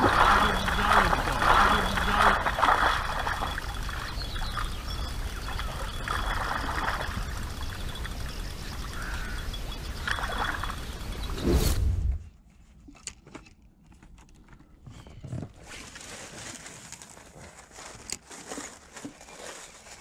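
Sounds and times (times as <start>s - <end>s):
fish splashing at water surface: 0.0s - 4.7s
short loud whoosh: 11.3s - 12.3s.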